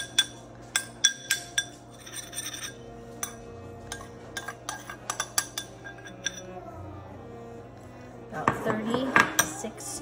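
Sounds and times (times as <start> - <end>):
metal spoon clinking on ceramic bowl: 0.0 - 6.6.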